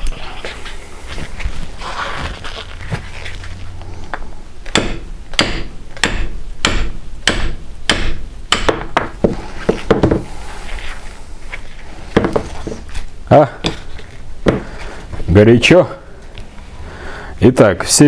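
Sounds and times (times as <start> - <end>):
metal struck against wooden block: 4.7 - 10.2.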